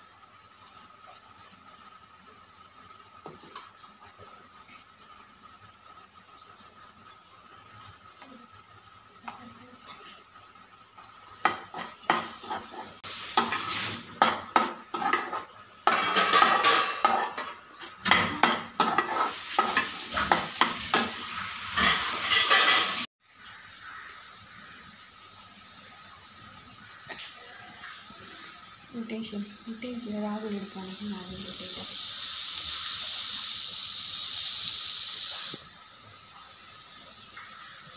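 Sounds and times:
food sizzling: 0.0s - 37.9s
metal spoon scraping a pan: 11.4s - 23.1s.

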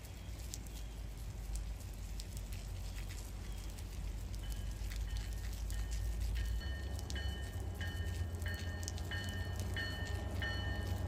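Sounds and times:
rain dripping and pattering: 0.0s - 11.0s
train rumble: 0.2s - 11.0s
faint high ringing tones: 4.4s - 11.0s.

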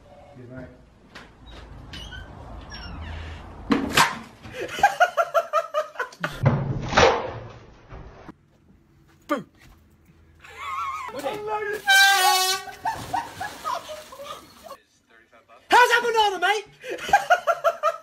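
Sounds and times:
person crying out: 10.4s - 11.2s
people shouting and yelping: 10.4s - 12.5s.

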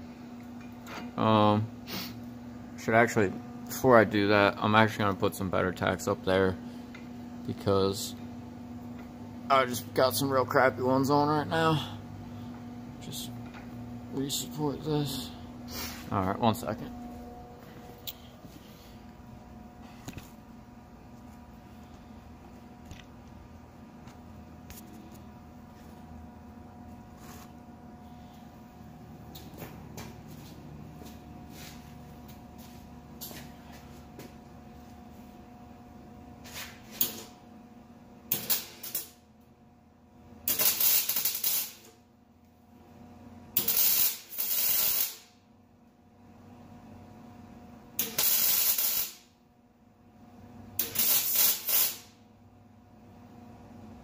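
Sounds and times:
faint electrical hum: 0.0s - 54.0s
arc welder hissing: 1.8s - 2.3s, 14.3s - 16.4s, 38.3s - 39.2s, 40.4s - 42.0s, 43.6s - 45.4s, 48.0s - 49.4s, 50.8s - 52.3s.

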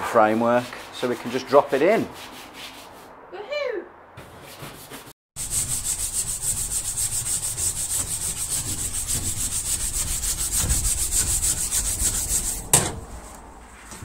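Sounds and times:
scrubber scrubbing a floor: 0.1s - 2.1s, 5.4s - 12.7s.

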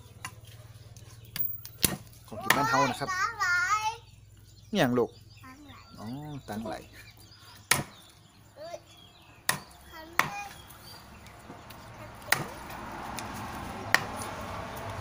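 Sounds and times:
knife chopping on wooden block: 12.3s - 12.5s.

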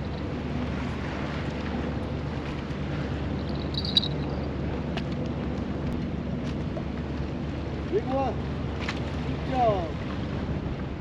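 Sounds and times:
wind buffeting microphone: 7.7s - 11.0s.

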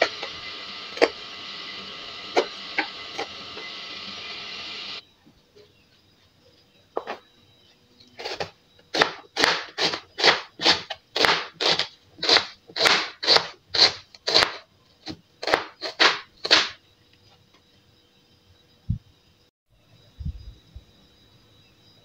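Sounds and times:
knife slicing onion on cutting board: 8.2s - 16.8s.

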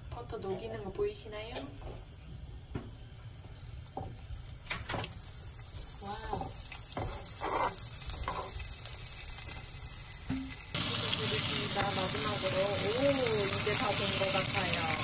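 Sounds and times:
butter sizzling in a frying pan: 3.8s - 15.0s.

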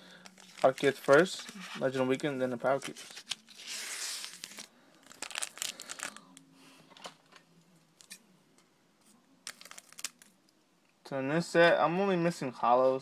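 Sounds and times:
foil crinkling: 0.1s - 6.4s, 9.5s - 10.3s
foil wrapper ripping: 0.2s - 1.6s, 2.7s - 6.3s, 9.5s - 10.3s.

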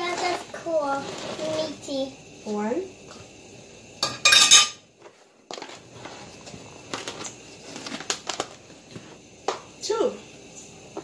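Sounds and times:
plastic cup scraping: 0.0s - 1.8s, 5.5s - 9.2s.

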